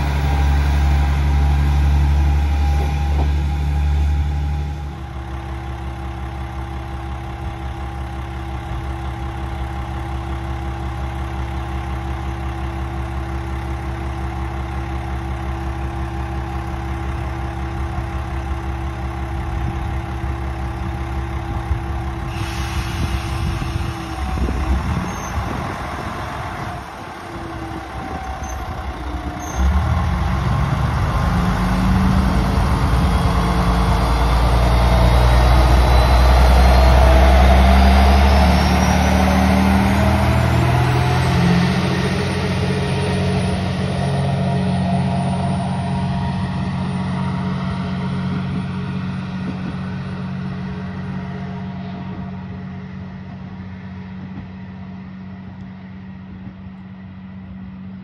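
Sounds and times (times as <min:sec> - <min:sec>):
diesel railcar engine idling: 0:00.0 - 0:58.0
rising whine: 0:22.3 - 0:58.0.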